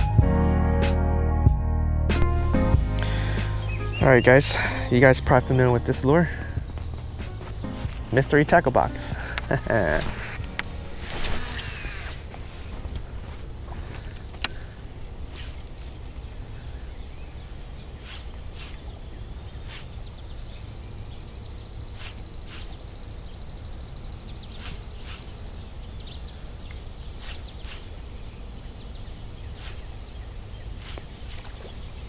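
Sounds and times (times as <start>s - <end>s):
steady low rumble: 1.5s - 21.8s
bird chirping: 2.5s - 32.0s
buzzy bird trill: 3.4s - 12.5s, 15.2s - 32.0s.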